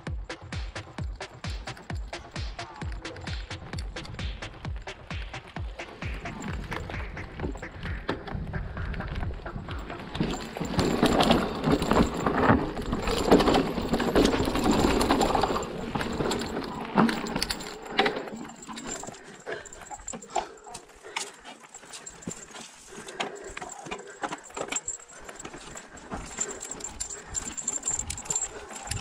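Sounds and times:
bike frame and chain rattling: 0.0s - 29.0s
bike tyres rolling over dirt: 3.1s - 21.2s.

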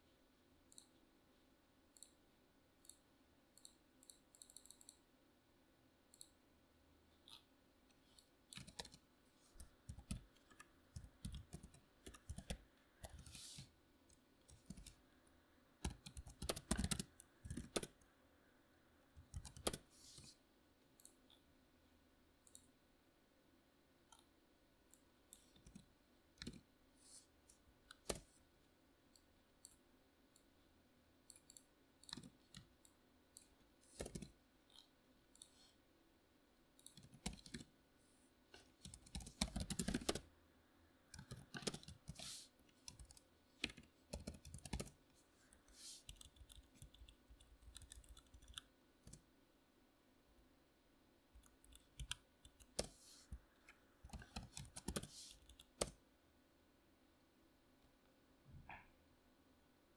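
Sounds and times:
keyboard typing: 2.8s - 5.1s, 7.2s - 15.0s, 15.8s - 18.1s, 19.2s - 20.3s, 25.3s - 26.7s, 27.9s - 28.3s, 31.3s - 35.6s, 36.8s - 37.7s, 38.7s - 40.3s, 41.1s - 45.0s, 45.6s - 49.2s, 51.4s - 56.0s.

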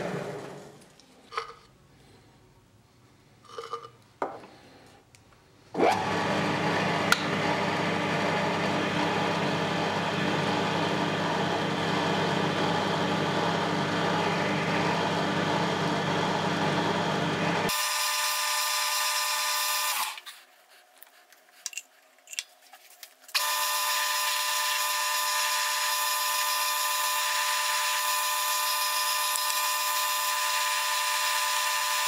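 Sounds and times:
faint handling sounds: 20.2s - 23.4s.

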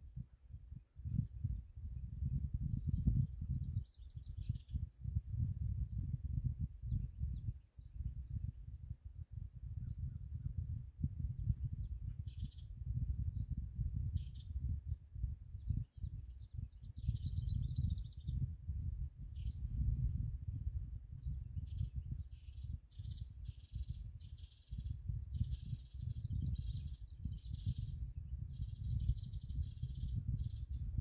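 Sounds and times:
birds chirping and trilling: 6.6s - 19.7s, 21.2s - 31.0s.

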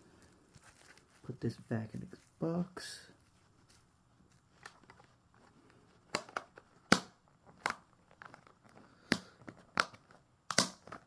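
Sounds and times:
packaging rustles and clicks: 3.6s - 11.0s.

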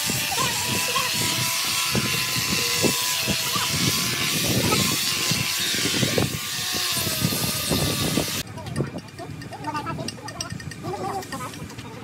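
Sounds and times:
angle grinder grinding stone: 0.0s - 8.5s.

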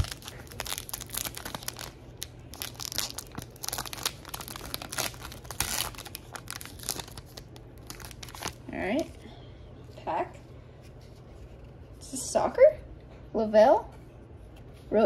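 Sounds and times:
wrapper crinkling: 0.0s - 9.2s.

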